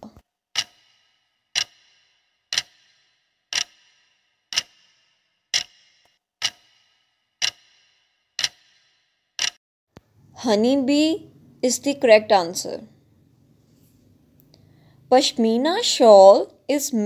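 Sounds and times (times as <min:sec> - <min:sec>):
clock ticks with ringing tail: 0:00.5 - 0:09.6.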